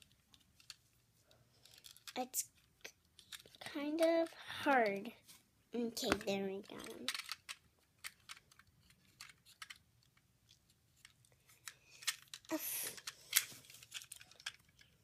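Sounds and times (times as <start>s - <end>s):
plastic toy clicks and taps: 6.0s - 8.6s.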